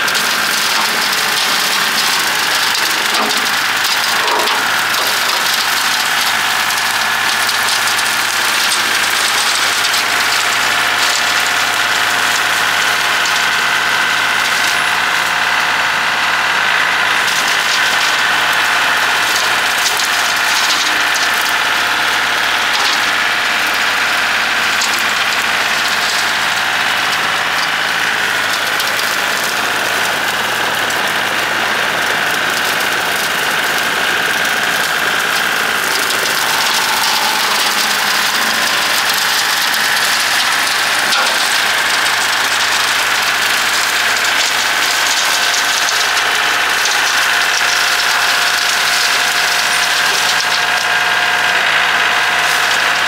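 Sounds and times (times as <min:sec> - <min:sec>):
tractor diesel engine running: 0:00.0 - 0:53.0
steady high whine: 0:32.7 - 0:44.5.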